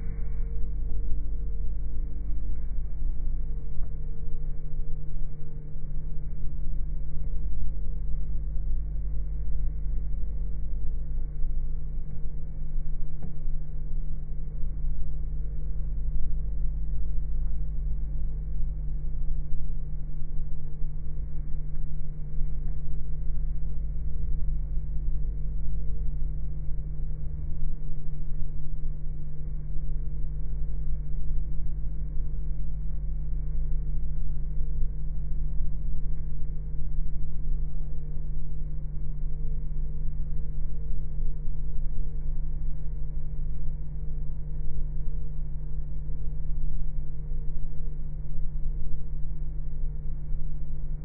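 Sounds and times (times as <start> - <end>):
faint higher tone: 0.0 - 4.2.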